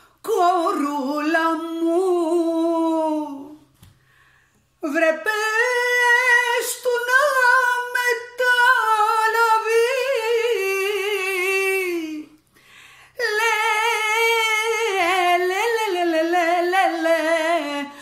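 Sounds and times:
woman singing unaccompanied: 0:00.2 - 0:03.7, 0:04.8 - 0:12.4, 0:13.2 - 0:18.0.

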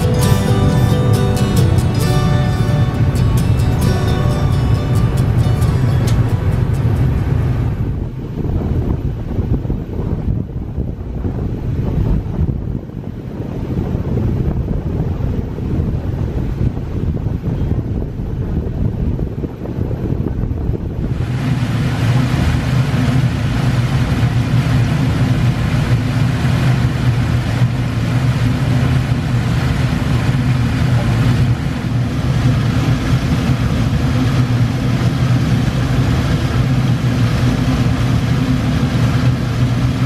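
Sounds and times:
ferry engine humming: 0:00.0 - 0:40.0
wake water rushing and splashing: 0:21.0 - 0:40.0.

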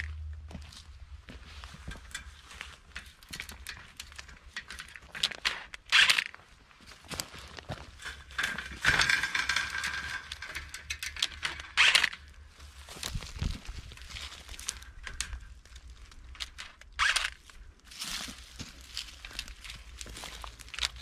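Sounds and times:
vine cane scraping against wire: 0:07.9 - 0:18.2.

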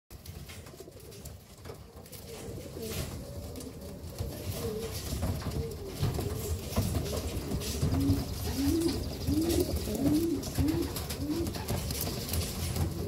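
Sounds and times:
pigeons cooing: 0:00.4 - 0:13.0.

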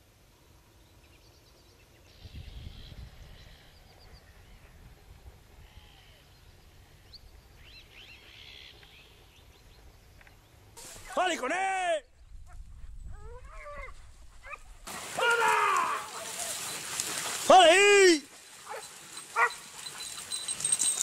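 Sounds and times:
small birds chirping: 0:18.4 - 0:21.0.

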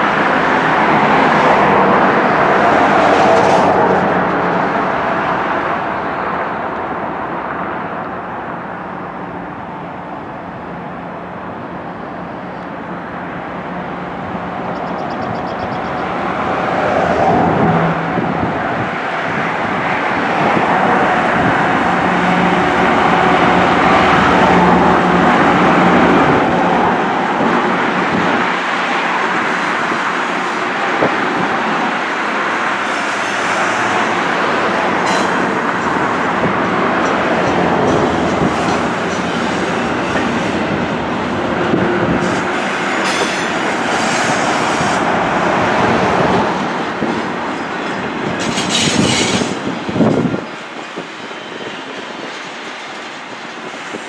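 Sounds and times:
diesel locomotive engine hum: 0:00.0 - 0:54.0
train wheels clattering on rails: 0:00.8 - 0:04.7, 0:27.5 - 0:54.0.

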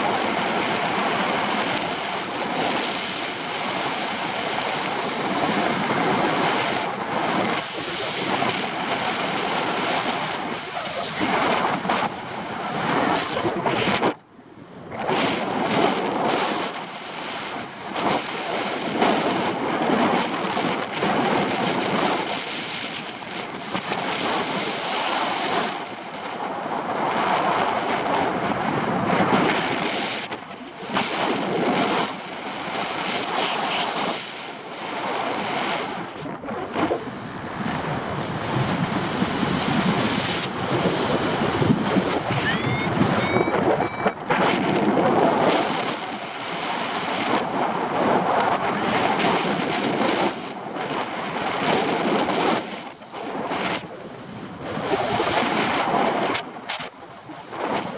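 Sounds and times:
wind buffeting microphone: 0:00.0 - 0:57.9
short high beeps: 0:42.3 - 0:44.2, 0:48.7 - 0:49.4.

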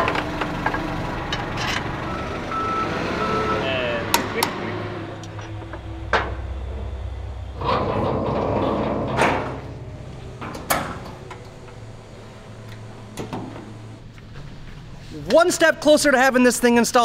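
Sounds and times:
steady low hum: 0:03.8 - 0:15.3
metal panel sliding shut: 0:07.4 - 0:12.0.

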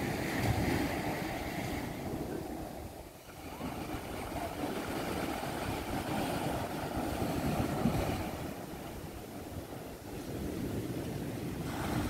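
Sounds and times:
small surf washing on sand: 0:00.0 - 0:12.0
wind buffeting microphone: 0:00.0 - 0:12.0.

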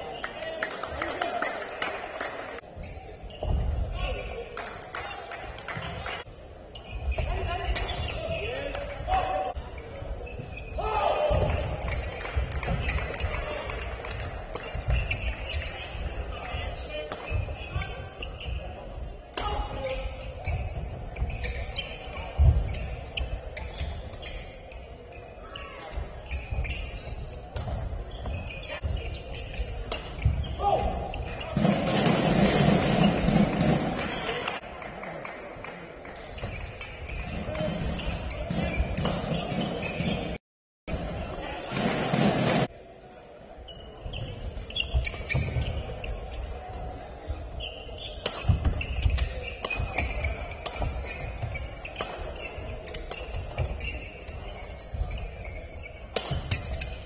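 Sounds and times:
shoes squeaking on court floor: 0:01.3 - 0:04.9, 0:05.7 - 0:31.7, 0:36.0 - 0:40.4, 0:43.6 - 0:57.0
racket hitting shuttlecock: 0:29.8 - 0:30.4, 0:48.2 - 0:51.2, 0:51.8 - 0:53.7, 0:56.1 - 0:57.0.

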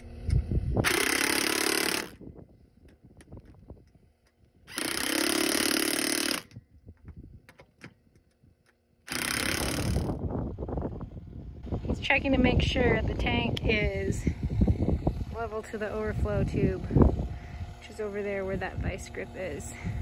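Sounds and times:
impact driver running bolts: 0:00.0 - 0:02.2, 0:02.8 - 0:06.6, 0:07.4 - 0:10.2.

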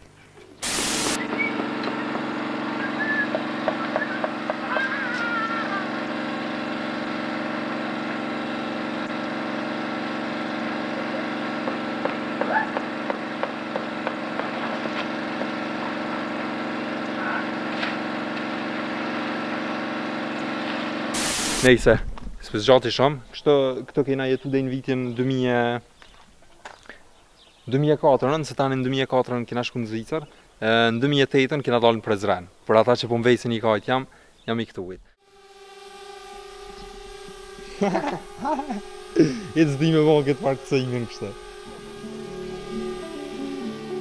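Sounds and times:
concrete mixer running: 0:00.0 - 0:21.7, 0:35.2 - 0:44.0
faint voices of workers: 0:02.9 - 0:06.2.

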